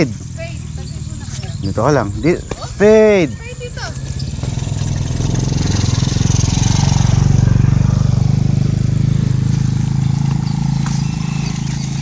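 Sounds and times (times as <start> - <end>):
small motorcycle engine passing: 0.0 - 12.0.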